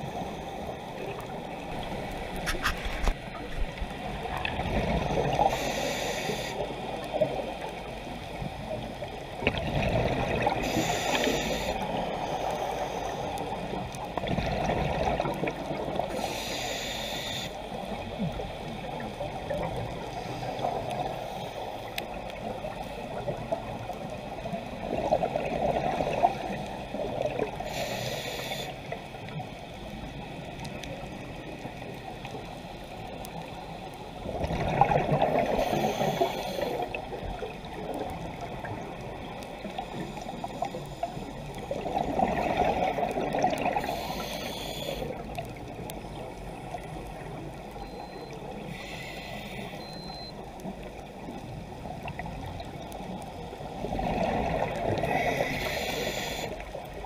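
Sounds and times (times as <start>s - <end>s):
exhaled bubbles rushing: 9.4s - 10.6s, 14.2s - 16.0s, 34.2s - 35.6s, 41.7s - 43.8s, 53.8s - 55.1s.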